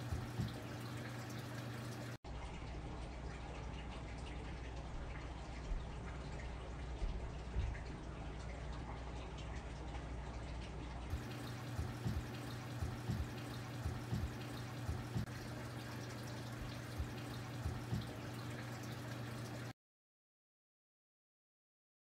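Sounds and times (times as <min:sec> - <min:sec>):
faint clicks and taps: 0:00.0 - 0:00.8, 0:03.8 - 0:15.3, 0:16.6 - 0:18.9
low electrical hum: 0:00.0 - 0:19.7.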